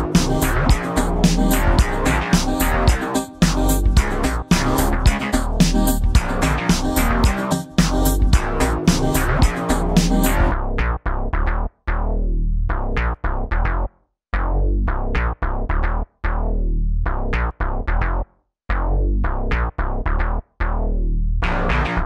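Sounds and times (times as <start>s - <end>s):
electronic music with drum-machine beat: 0.0s - 10.6s.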